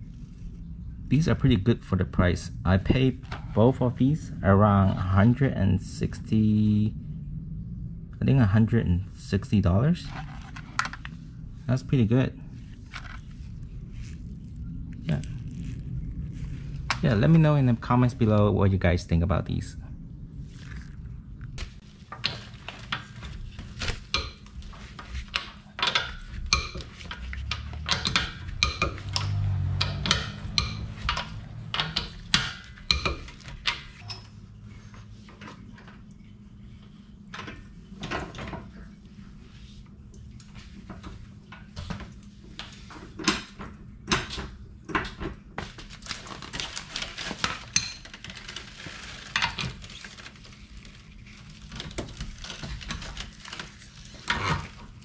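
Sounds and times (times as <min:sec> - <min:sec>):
metal nuts clinking: 0:25.3 - 0:34.3.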